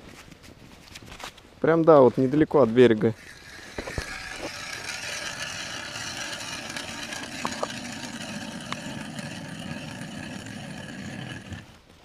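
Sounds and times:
ice auger motor drilling: 3.2 - 11.8.

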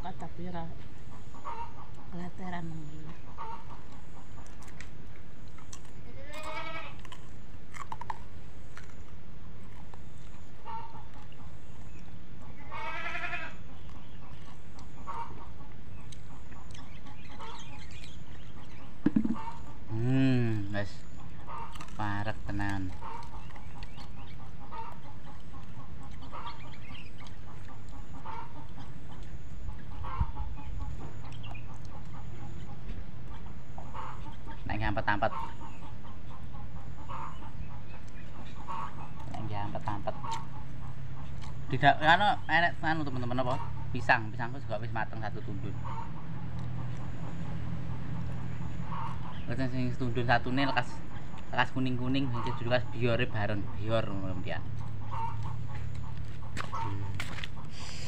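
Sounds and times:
chickens clucking: 0.0 - 6.0, 7.0 - 58.0
farm animal bleating: 6.0 - 7.2, 12.6 - 13.7.

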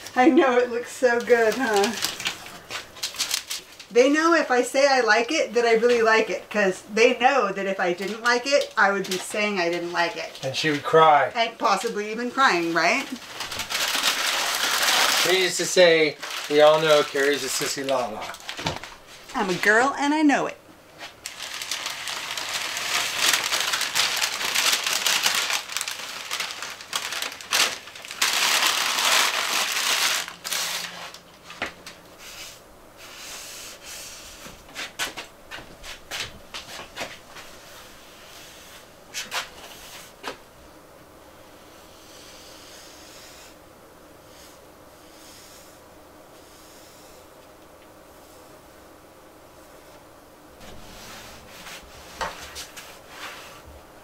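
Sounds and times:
paper crinkling: 1.1 - 3.9, 12.6 - 19.8, 21.0 - 32.0.

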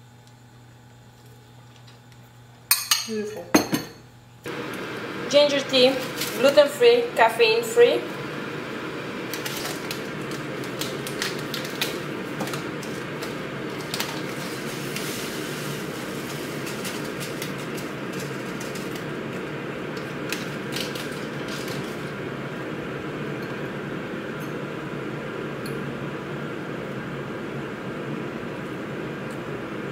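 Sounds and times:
steady background hum: 0.0 - 29.9
paper sachet tearing: 9.3 - 22.1.

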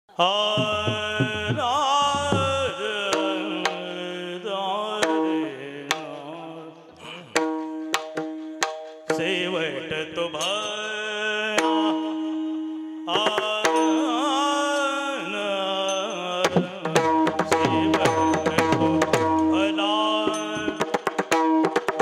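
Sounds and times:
man singing ornamented notes: 0.1 - 21.4
drum strokes: 0.5 - 4.0, 7.2 - 9.6, 16.4 - 22.0
sharp percussion strikes: 0.6 - 4.0, 7.2 - 12.2, 13.2 - 22.0.

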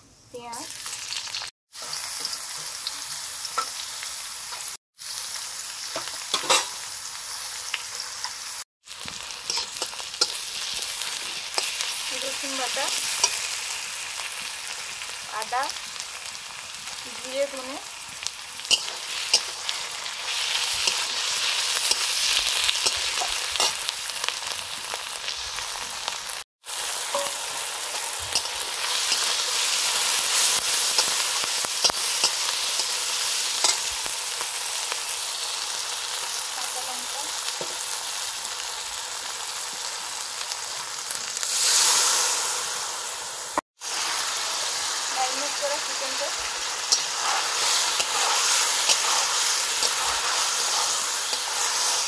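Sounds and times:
food sizzling in a wok: 0.3 - 52.0
liquid hissing on hot pan: 41.4 - 52.0
spatula scraping pan: 46.9 - 52.0.

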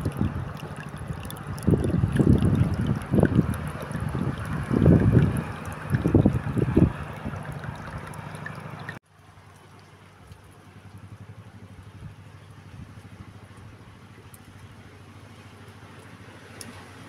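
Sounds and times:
wind buffeting microphone: 0.0 - 8.4.

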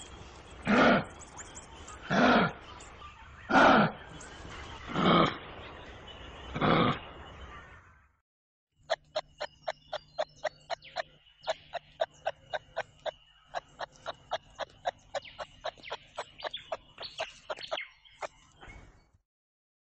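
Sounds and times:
wallaby clucking clicks: 8.9 - 17.8.

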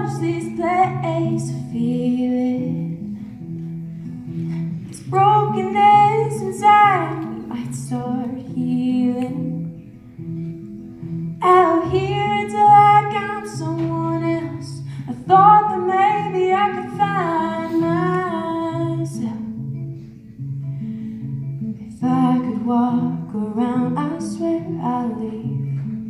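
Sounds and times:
woman singing: 0.0 - 3.1, 4.8 - 9.9, 11.4 - 19.7, 21.8 - 26.0
plucked acoustic guitar: 0.0 - 26.0.

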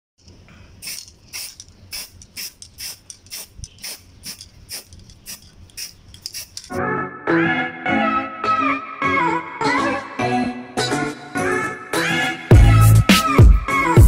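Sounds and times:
spray paint can hissing: 0.8 - 6.8.

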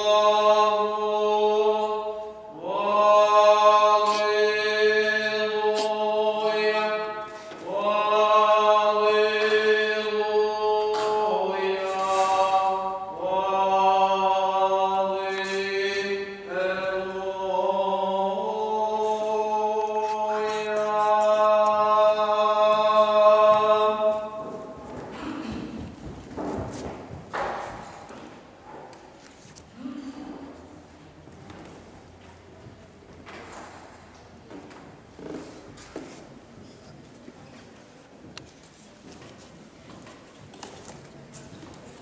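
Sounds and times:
liturgical chant singing: 0.0 - 28.9.

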